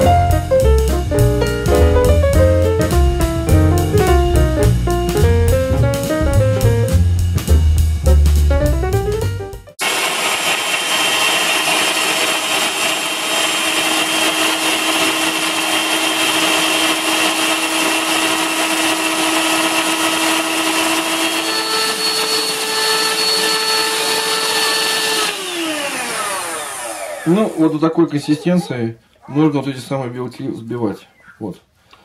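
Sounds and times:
electric hand mixer whine: 0:09.8 - 0:27.8.

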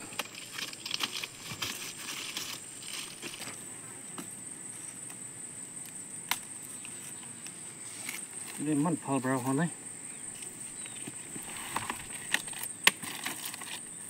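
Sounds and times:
rustling: 0:00.0 - 0:03.8, 0:06.3 - 0:09.6, 0:10.2 - 0:14.0
high-pitched insect drone: 0:00.0 - 0:14.0.

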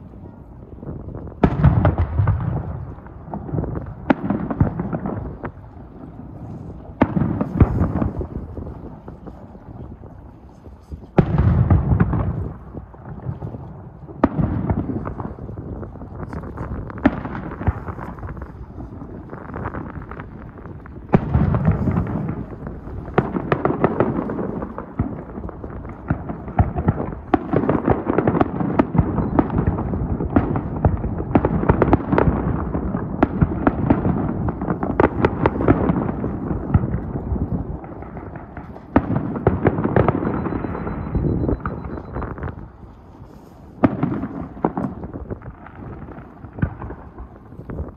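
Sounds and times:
fireworks bursting: 0:01.2 - 0:47.9.

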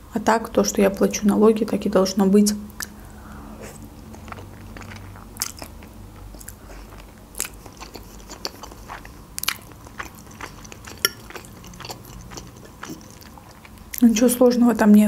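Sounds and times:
chewing spaghetti: 0:03.6 - 0:14.3
wet mouth clicks and smacks: 0:07.4 - 0:13.8.

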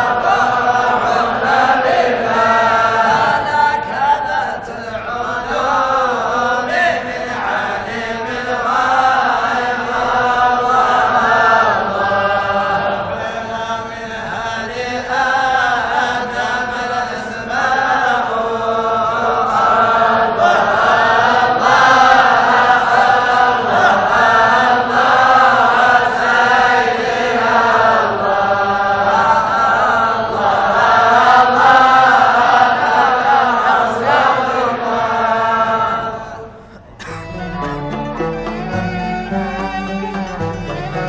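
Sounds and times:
men chanting a hymn in unison: 0:00.0 - 0:36.6.

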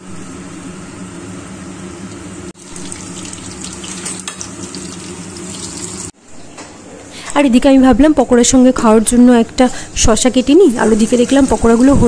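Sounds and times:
deep-frying sizzle with crackling: 0:02.6 - 0:06.2.

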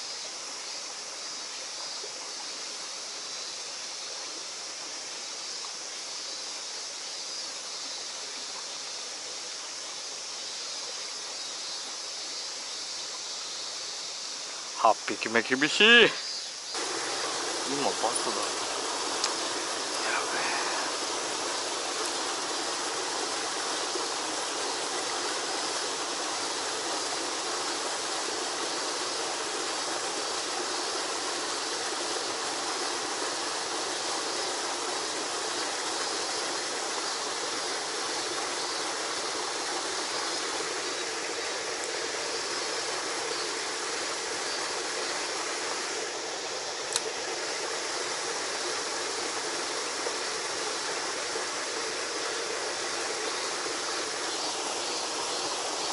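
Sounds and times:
water rushing and splashing: 0:14.1 - 0:55.9.

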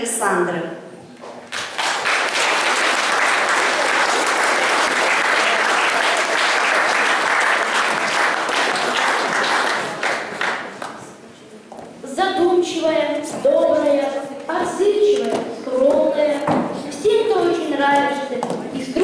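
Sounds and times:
audience applauding: 0:01.5 - 0:11.0.

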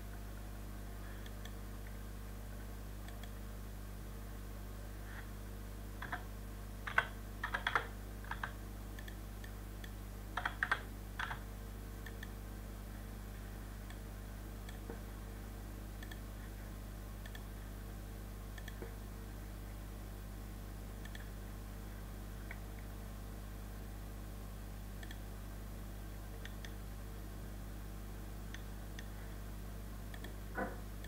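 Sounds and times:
low electrical hum: 0:00.0 - 0:31.0
computer keyboard keystrokes: 0:06.0 - 0:11.4.

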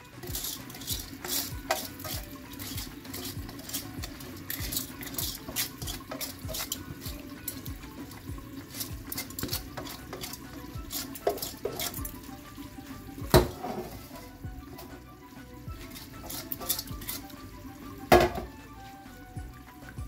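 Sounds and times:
spatula scraping metal bowl: 0:00.0 - 0:12.3, 0:13.2 - 0:14.9, 0:15.7 - 0:17.6.

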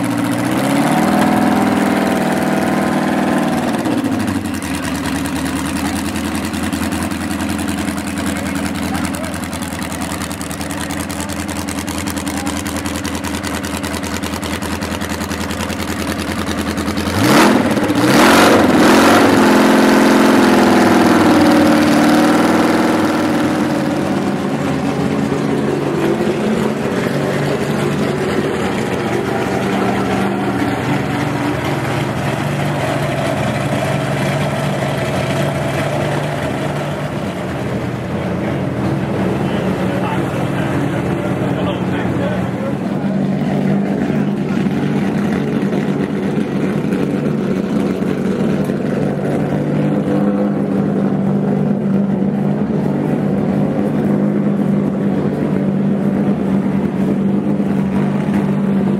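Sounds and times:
racing car engines: 0:00.0 - 0:58.9.

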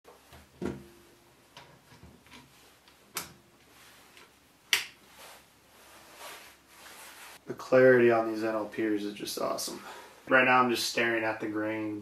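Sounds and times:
sharp clicks and light knocks: 0:01.5 - 0:03.4.

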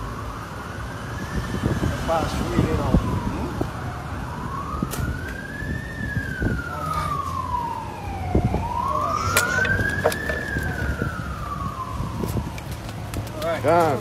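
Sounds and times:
emergency vehicle siren wailing: 0:00.0 - 0:14.0.

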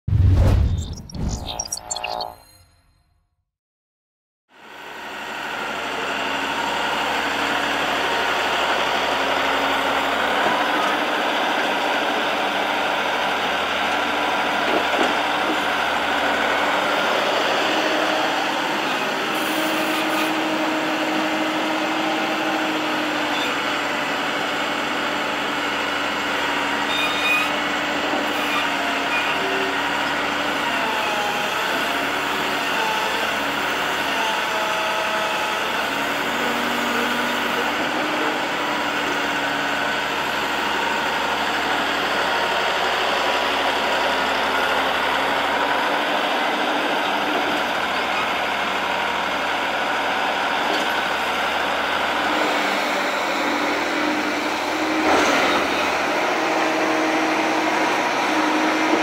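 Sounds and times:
diesel excavator engine running: 0:04.6 - 0:59.0.

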